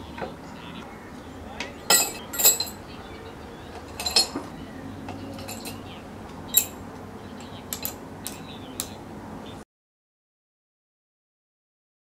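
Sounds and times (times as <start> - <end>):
steel rod clinking against crucible: 1.9 - 2.8, 3.8 - 4.5, 5.1 - 5.9, 6.5 - 6.8, 7.4 - 8.5.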